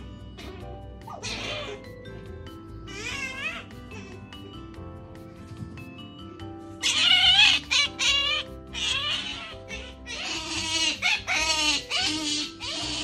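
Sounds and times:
otter squealing: 0.4 - 1.9, 6.8 - 13.0.

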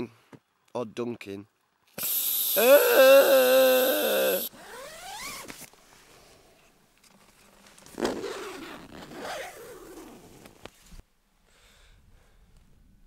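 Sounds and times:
tent zipper unzipping: 3.3 - 5.6, 8.0 - 10.4.

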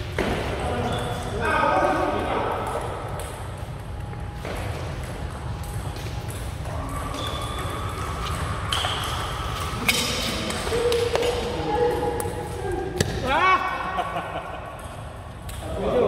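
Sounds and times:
low hum of hall: 0.0 - 16.0.

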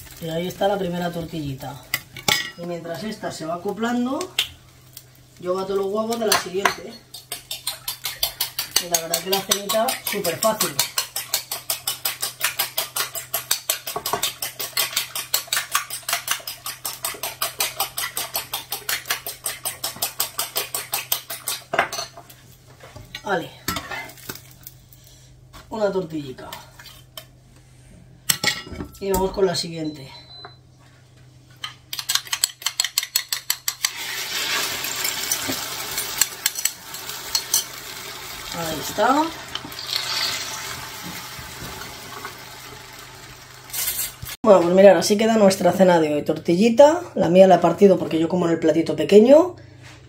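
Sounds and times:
eggs beaten in a bowl: 6.0 - 22.2, 31.6 - 43.4.

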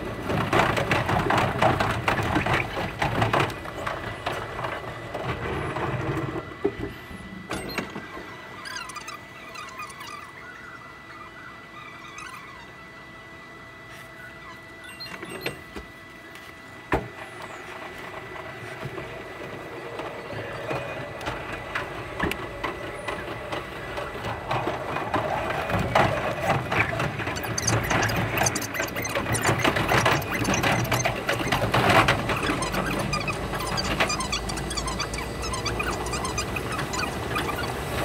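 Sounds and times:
train wheels clicking and squealing: 22.8 - 38.0.

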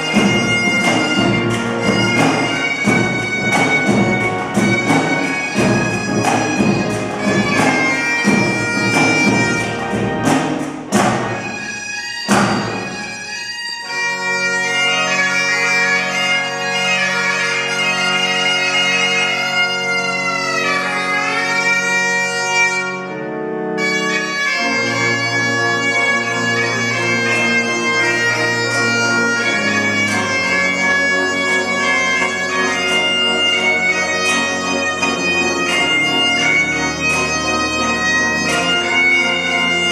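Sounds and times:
snare drums: 0.0 - 13.2, 32.7 - 39.9
bagpipes playing a tune: 0.0 - 39.9
pipe organ chords: 0.0 - 39.9.

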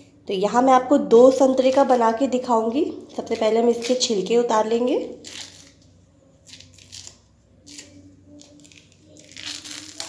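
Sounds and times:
orange peel tearing: 5.1 - 10.0.

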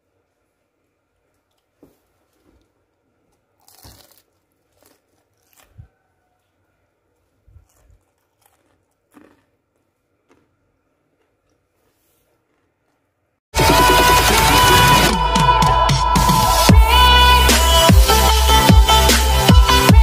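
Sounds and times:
crispy food crunching: 1.2 - 6.2, 7.0 - 13.3.

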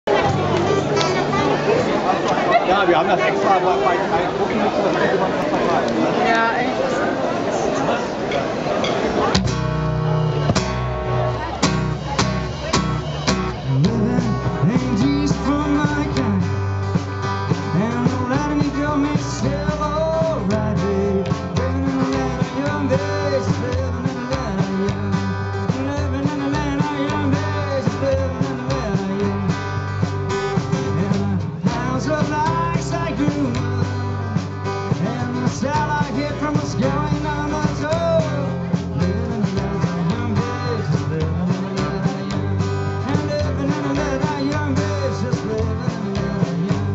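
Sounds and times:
second guitar: 0.0 - 6.6, 8.3 - 46.9
strummed acoustic guitar: 0.1 - 3.4, 8.8 - 46.9
drum kit: 9.3 - 46.9
man singing: 13.5 - 46.9.

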